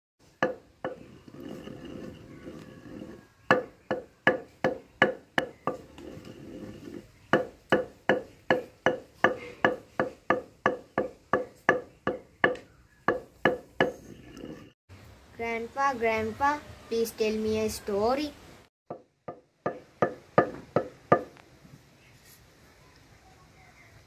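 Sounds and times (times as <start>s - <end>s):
wooden pestle pounding in mortar: 0.4s - 14.2s, 18.9s - 21.4s.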